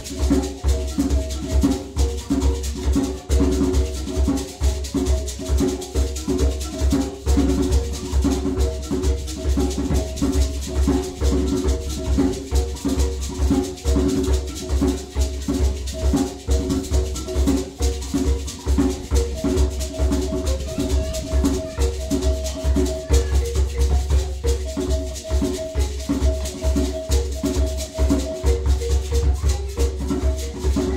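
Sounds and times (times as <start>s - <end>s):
gourd shakers rattling: 0.0s - 30.9s
hand drum: 0.0s - 30.9s
mbira plucked notes: 0.0s - 30.9s.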